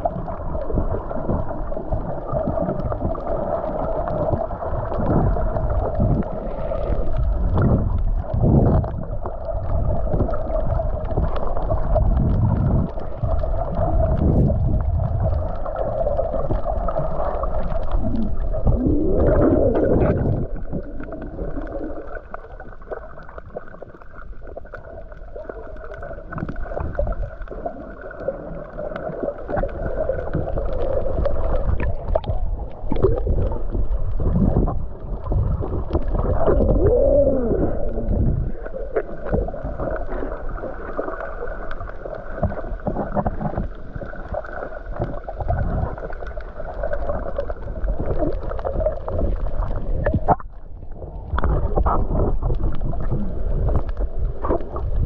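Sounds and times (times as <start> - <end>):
water sloshing and gurgling: 0.0 - 55.0
deep rumbles: 4.1 - 22.0, 29.7 - 40.6.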